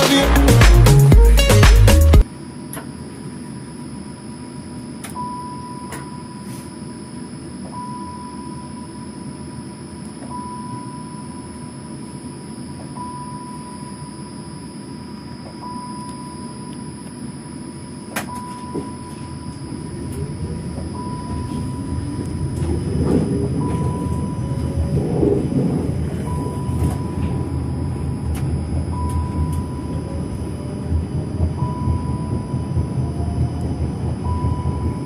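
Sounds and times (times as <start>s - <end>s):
electronic beep: 7.7s - 9.2s, 10.2s - 11.8s, 12.9s - 14.5s, 15.5s - 17.0s, 18.2s - 28.0s, 28.8s - 33.2s, 34.1s - 35.0s
tram equipment humming: 16.9s - 35.0s.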